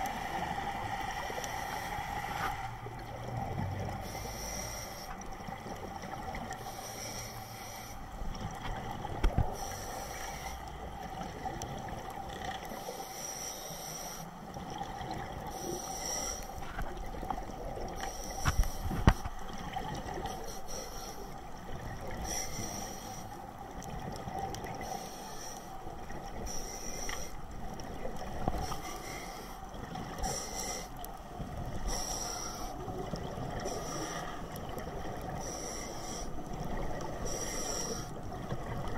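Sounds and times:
steady underwater drone: 0.0 - 38.9
diver breathing through regulator: 4.0 - 5.2, 6.6 - 8.1, 15.5 - 16.8, 18.0 - 19.3, 20.2 - 21.4, 22.2 - 23.4, 24.8 - 25.7, 26.4 - 27.4, 28.5 - 31.0, 31.8 - 32.9, 33.6 - 34.6, 35.3 - 36.4, 37.1 - 38.2.

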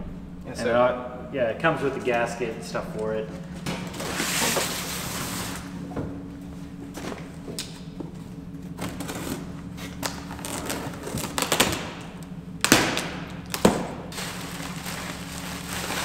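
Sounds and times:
steady low hum: 0.0 - 16.0
plastic wrapping rustling: 8.8 - 11.8, 14.1 - 16.0.

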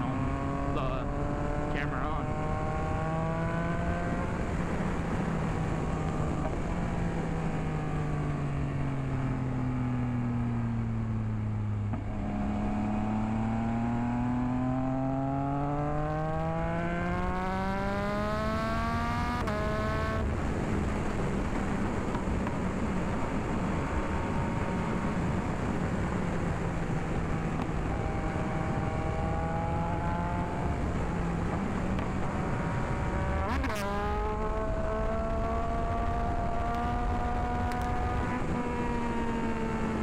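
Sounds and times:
motorcycle engine: 0.0 - 40.0.

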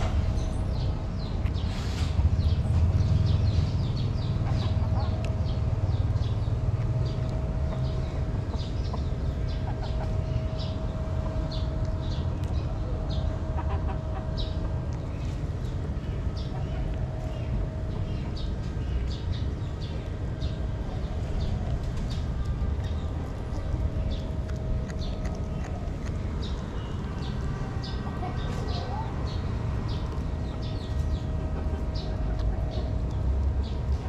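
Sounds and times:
low rumble: 0.0 - 34.0
kitten eating smacks and crunches: 20.0 - 28.5.

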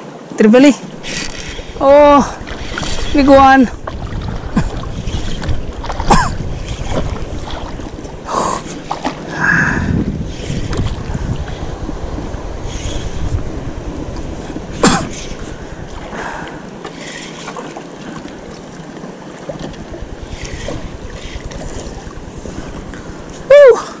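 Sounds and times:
water lapping around boat: 0.0 - 24.0
wind buffeting microphone: 0.8 - 16.9, 17.5 - 23.8.

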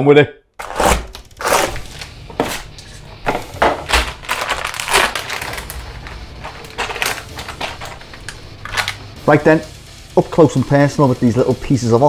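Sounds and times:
packaging rustling: 0.6 - 9.2
sharp crunching: 0.6 - 9.2.

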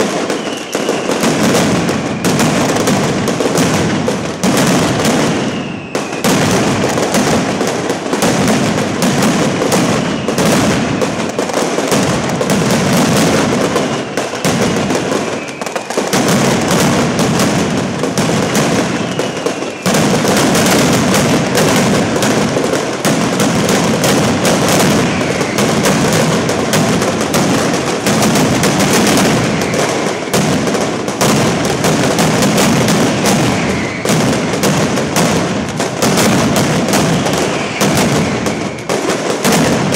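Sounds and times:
firecrackers banging rapidly: 0.0 - 39.9
short falling whistles: 0.3 - 1.2, 5.4 - 6.3, 15.2 - 15.8, 33.2 - 34.5.

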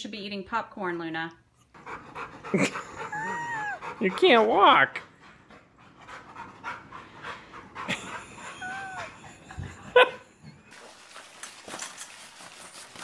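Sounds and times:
dog panting: 1.7 - 9.8
people laughing lightly: 7.8 - 10.2.

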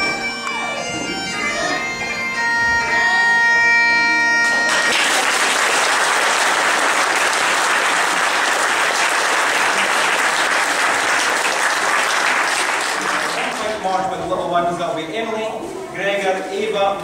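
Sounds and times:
bagpipe music: 0.0 - 13.3
audience clapping: 4.4 - 13.9.

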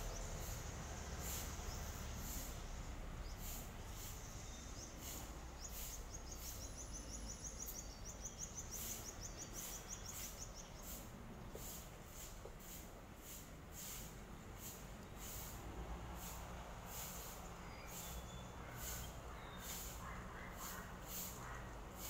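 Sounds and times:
bird chirping: 0.0 - 11.1, 17.4 - 22.0
low background noise: 0.0 - 22.0.

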